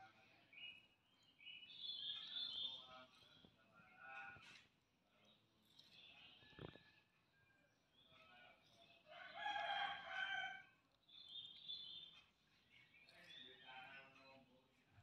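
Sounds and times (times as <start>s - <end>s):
faint bird chirps: 0.0s - 4.3s, 5.2s - 8.9s
rooster crowing: 9.1s - 10.6s.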